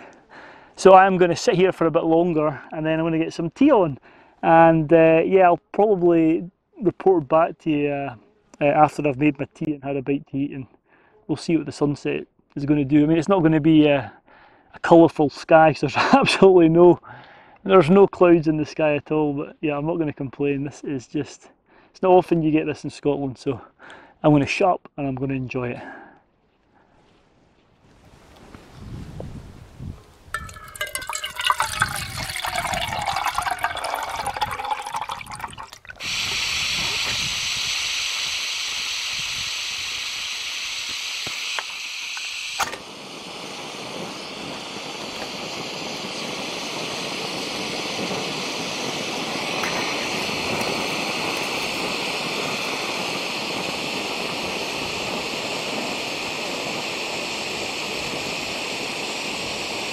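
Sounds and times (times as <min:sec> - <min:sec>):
water gurgling into cup: 0:30.3 - 0:37.1, 0:49.0 - 0:53.2
gas stove hissing: 0:30.4 - 0:59.9.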